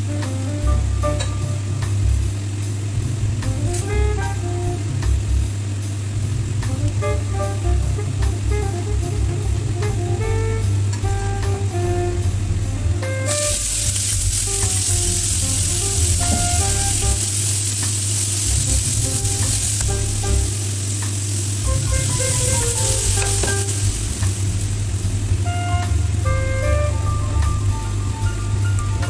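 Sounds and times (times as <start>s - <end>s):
meat sizzling in hot oil: 13.3s - 27.7s.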